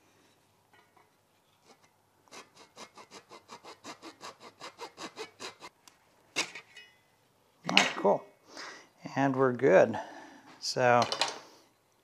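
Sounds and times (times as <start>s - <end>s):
hand saw cutting wood: 1.7s - 5.7s.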